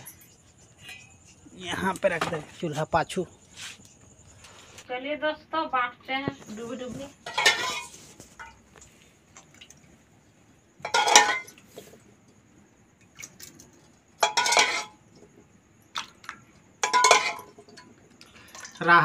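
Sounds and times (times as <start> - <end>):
metal ladle clattering against pot: 0.0 - 1.5, 7.2 - 8.6, 10.8 - 11.6, 14.2 - 15.0, 16.8 - 18.0
light metal clinks: 0.0 - 2.2.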